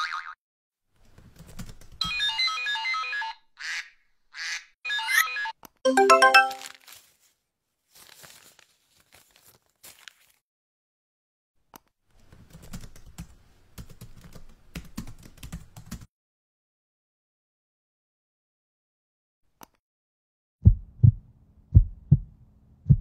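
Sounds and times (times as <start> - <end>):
keyboard typing: 1.2 - 2.1, 12.2 - 16.1
electronic alert chime: 5.9 - 6.6
paper rustling and crumpling: 6.5 - 10.4.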